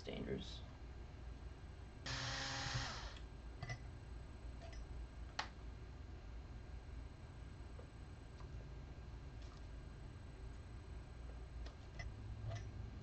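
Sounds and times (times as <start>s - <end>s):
power driver motor running: 2.1s - 3.2s.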